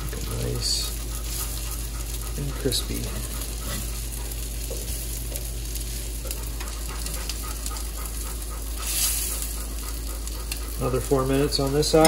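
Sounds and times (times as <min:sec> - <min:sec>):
fish sizzling in skillet: 0:00.0 - 0:12.0.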